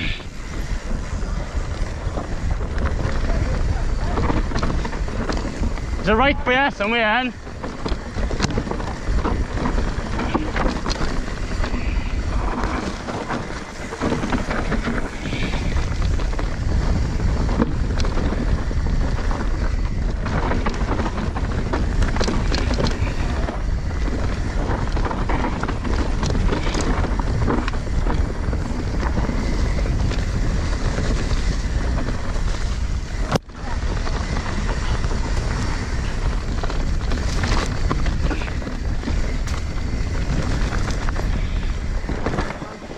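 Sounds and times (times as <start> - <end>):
bike knocking and rattling: 0.0 - 42.9
bike tyres rolling on dirt: 0.0 - 42.9
wind buffeting microphone: 0.0 - 42.9.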